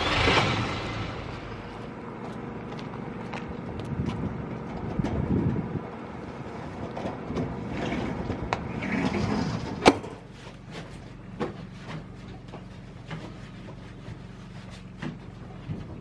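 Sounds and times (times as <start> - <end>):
roller shutter door rattling: 6.7 - 10.3.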